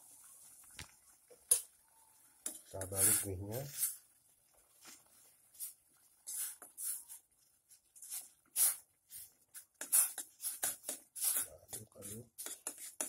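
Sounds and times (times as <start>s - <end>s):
boiling water: 0.0s - 13.0s
metal spoon scraping in a pot: 2.4s - 4.1s, 5.6s - 7.2s, 8.0s - 13.0s.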